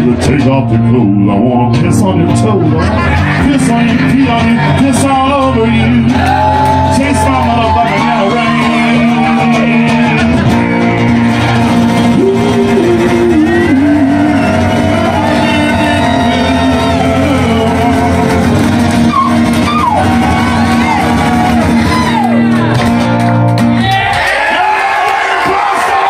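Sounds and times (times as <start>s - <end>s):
man singing into a microphone: 0.0s - 10.8s, 11.9s - 18.6s
acoustic guitars strummed: 0.0s - 24.0s.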